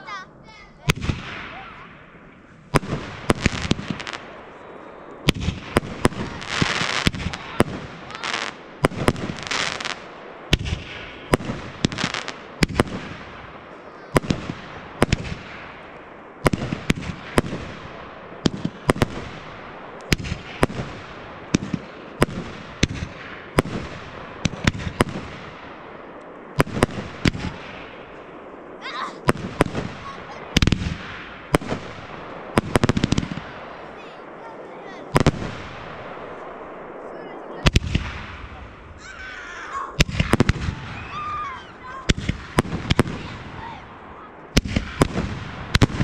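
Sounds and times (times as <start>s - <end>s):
fireworks bursting with bangs: 0.0s - 46.0s
hissing crackle: 0.8s - 46.0s.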